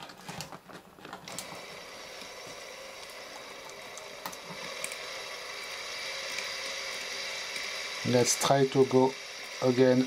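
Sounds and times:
small electric motor whirring: 1.3s - 10.0s.

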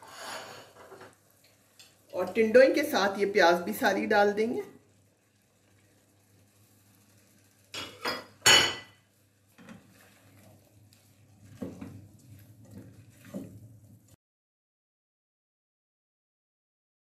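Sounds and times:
spatula scraping metal pot: 0.0s - 1.1s
glass bowl clinking on metal pot: 7.8s - 9.0s.

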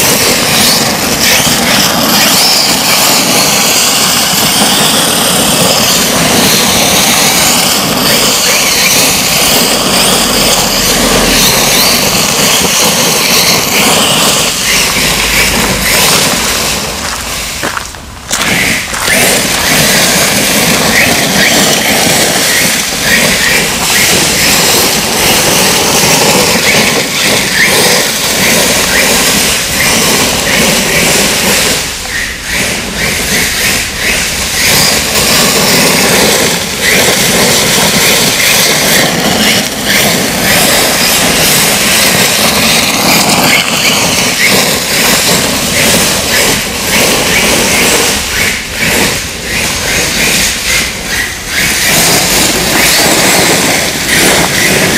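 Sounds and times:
drivetrain noise: 0.0s - 54.9s
electric motor whining: 0.0s - 54.9s
tyres scrabbling on loose dirt: 0.0s - 54.9s.

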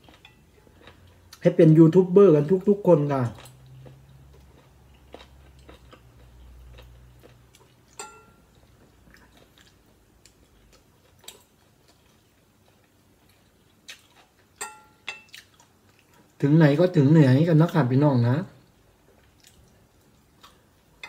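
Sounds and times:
quiet chewing: 0.0s - 1.4s, 3.2s - 16.4s, 18.6s - 21.0s
metal spoon clinking on glass plate: 8.0s - 8.4s, 14.6s - 15.3s.

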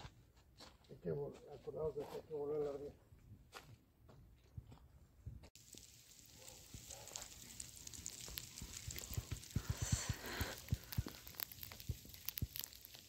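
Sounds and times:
snow and ice pellets ticking: 5.6s - 13.0s.

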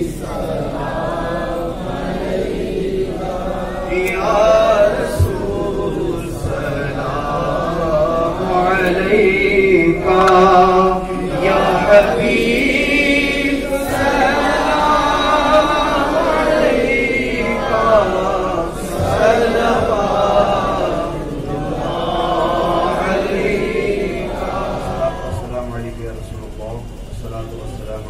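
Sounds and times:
men chanting together: 0.0s - 26.0s.

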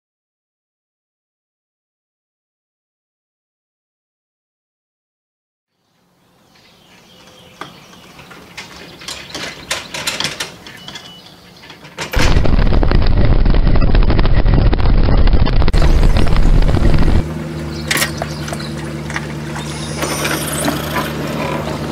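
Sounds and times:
wind rushing: 12.2s - 17.3s
road noise: 15.2s - 21.9s.

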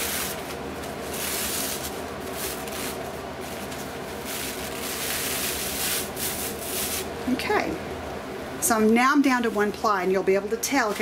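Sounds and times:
paper napkin rustling: 0.0s - 7.1s, 9.2s - 10.0s, 10.6s - 11.0s.

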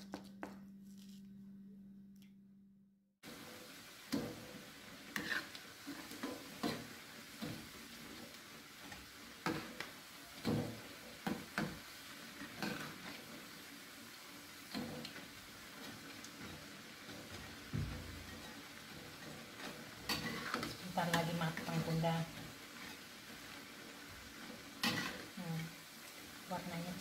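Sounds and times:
fritters sizzling in hot oil: 3.2s - 27.0s.

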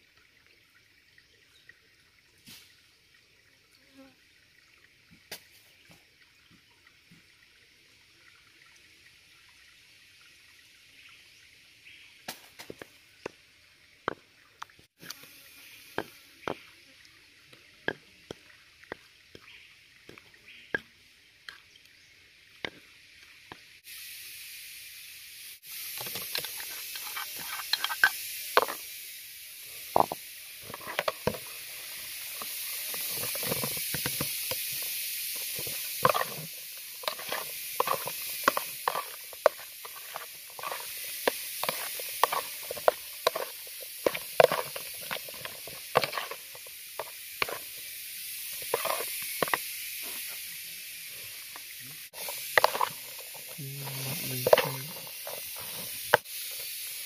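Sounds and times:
food frying in hot oil: 21.5s - 57.0s.

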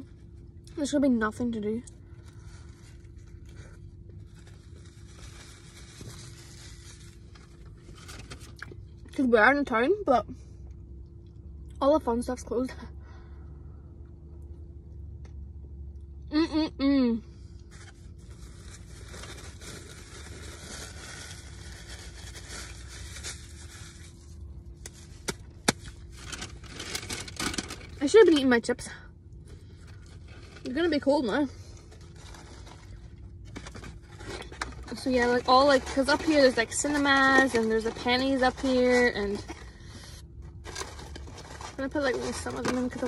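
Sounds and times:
faint steady hum: 0.0s - 43.0s
paper wrapper crinkling: 2.1s - 8.8s, 17.7s - 28.4s, 31.8s - 39.8s, 40.4s - 43.0s.

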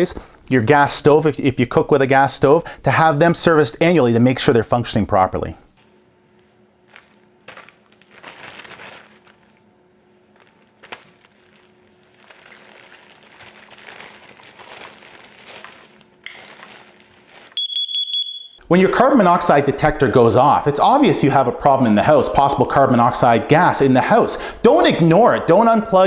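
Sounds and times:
plastic bag crinkling: 6.8s - 17.7s
high-pitched electronic alarm beep: 17.6s - 18.6s.

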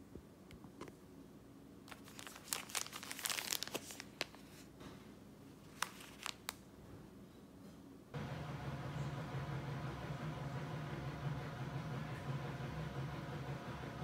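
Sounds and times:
plastic sachets crinkling: 1.9s - 4.7s, 5.6s - 6.7s.

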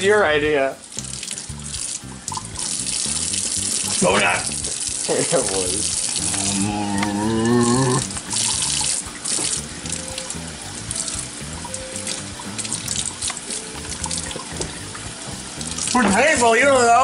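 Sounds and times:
quiet background music: 0.0s - 17.0s
tap water running: 0.0s - 17.0s.

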